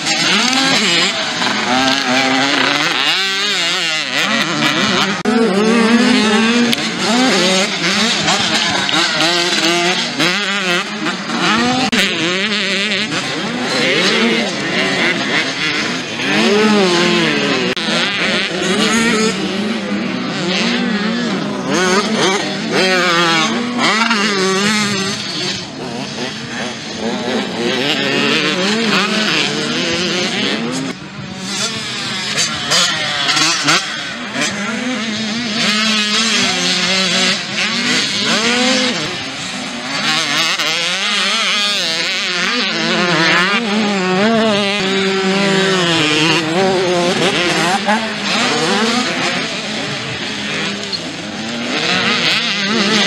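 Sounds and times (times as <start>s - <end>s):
dirt bike engines revving: 0.0s - 53.0s.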